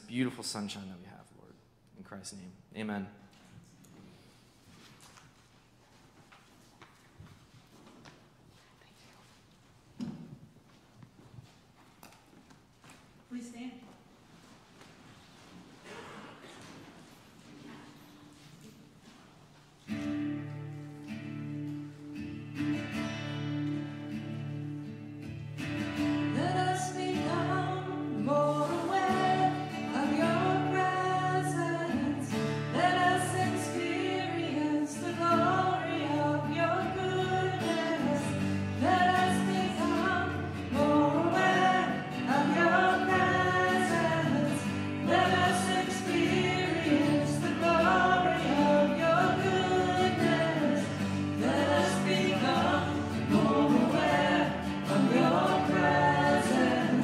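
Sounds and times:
acoustic guitar strumming: 0:19.9 - 0:57.0
group singing worship song: 0:26.2 - 0:57.0.

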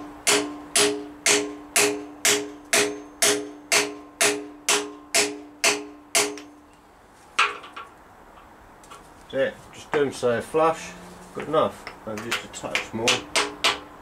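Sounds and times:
hammer striking metal socket: 0:00.2 - 0:06.5.

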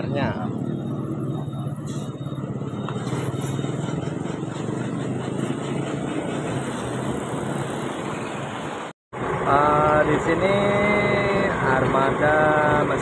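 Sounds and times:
bus diesel engine idling: 0:09.2 - 0:13.0.

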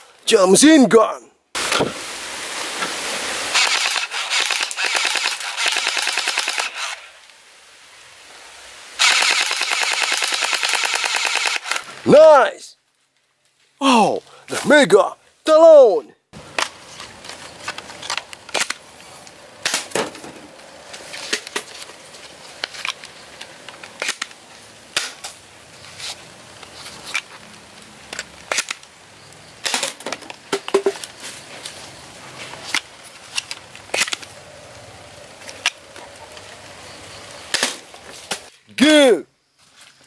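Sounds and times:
toy blaster plastic clicks and snaps: 0:09.0 - 0:11.9.

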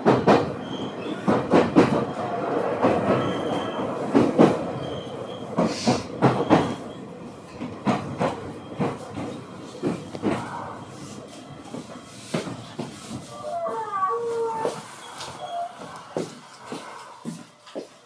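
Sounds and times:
clacks over rail joints: 0:00.0 - 0:02.2, 0:02.8 - 0:06.9, 0:07.5 - 0:10.6, 0:11.7 - 0:13.3
train wheels rumbling on rail: 0:00.0 - 0:18.0
faint high wheel squeals: 0:03.2 - 0:04.0, 0:04.8 - 0:05.6, 0:13.3 - 0:16.2.

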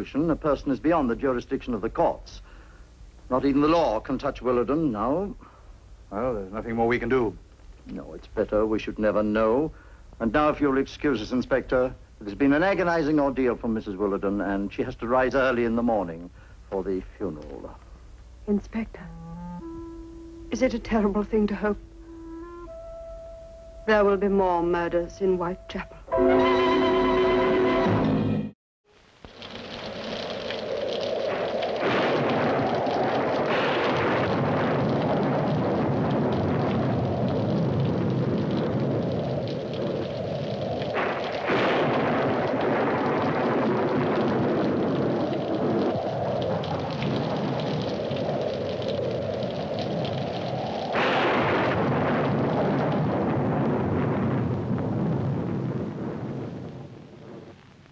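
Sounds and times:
dense rumbling roar: 0:29.5 - 0:56.7.

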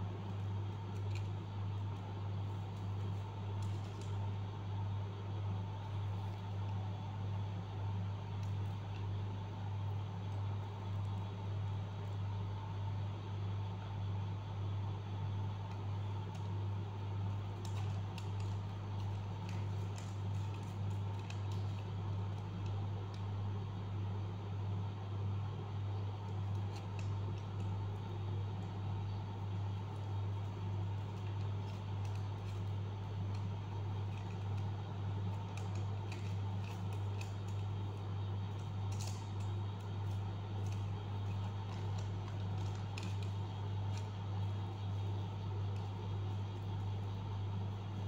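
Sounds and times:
steady low hum: 0:00.0 - 0:48.0
paper crinkling and folding: 0:30.4 - 0:46.7.

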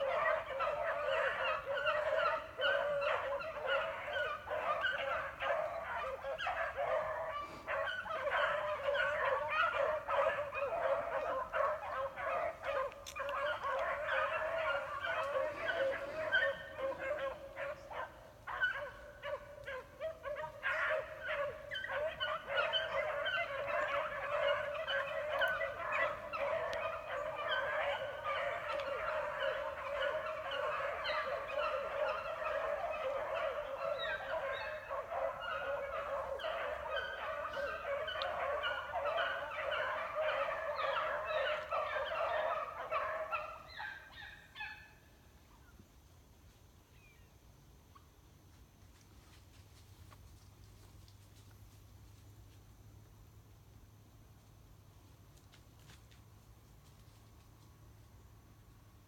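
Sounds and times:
pack of dogs baying: 0:00.0 - 0:44.9.

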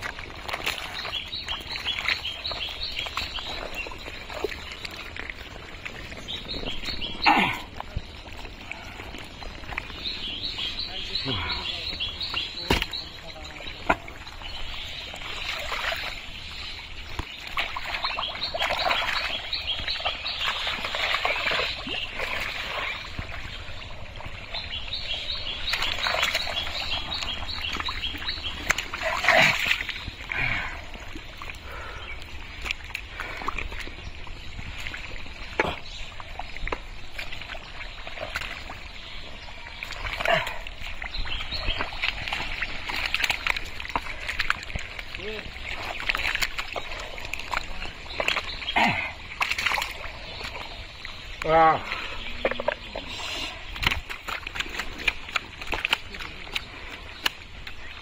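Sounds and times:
birds chirping: 0:00.0 - 0:58.0
hands splashing through mud: 0:09.6 - 0:14.2, 0:25.4 - 0:30.8, 0:39.9 - 0:50.7, 0:53.6 - 0:58.0.

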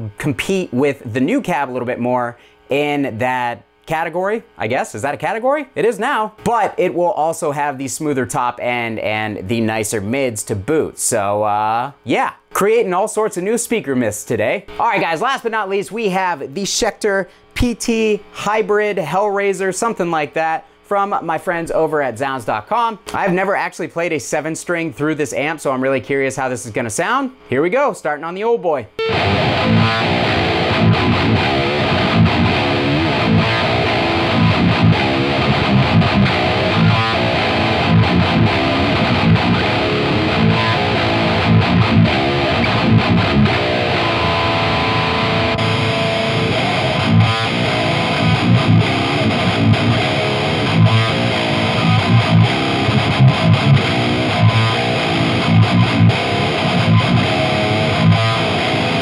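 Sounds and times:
distorted electric guitar riffs: 0:28.9 - 0:59.0
held guitar chord ringing: 0:29.0 - 0:59.0.

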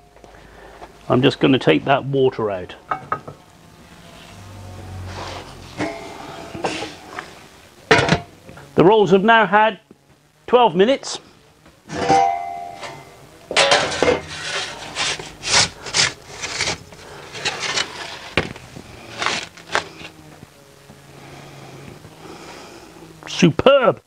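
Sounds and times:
metal pizza peel clattering and scraping: 0:13.6 - 0:18.4.

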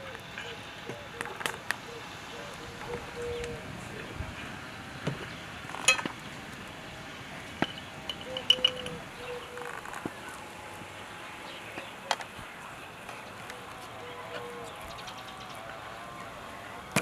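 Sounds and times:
teaspoon clinking on glass jar: 0:07.7 - 0:09.0.

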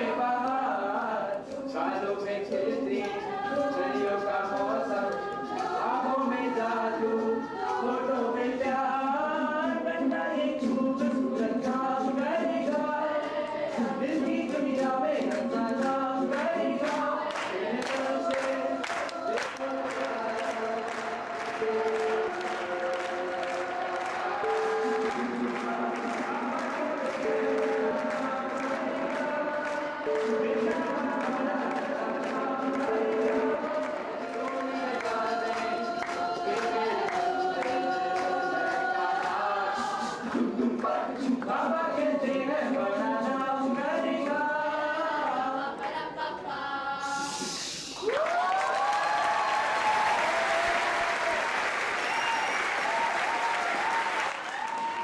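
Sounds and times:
song with sung vocals: 0:00.0 - 0:55.0
audience clapping: 0:13.1 - 0:41.5, 0:48.0 - 0:55.0
choir singing sustained notes: 0:15.2 - 0:48.1.

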